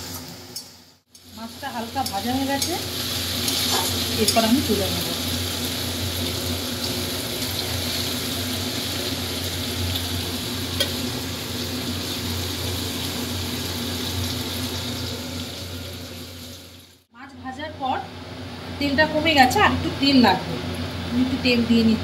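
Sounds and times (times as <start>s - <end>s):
fish sizzling in hot oil: 0.9s - 17.1s.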